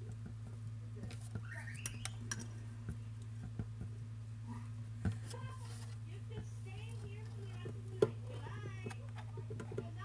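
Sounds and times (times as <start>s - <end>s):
steady low hum: 0.0s - 10.0s
guinea pig squeak: 1.4s - 2.3s.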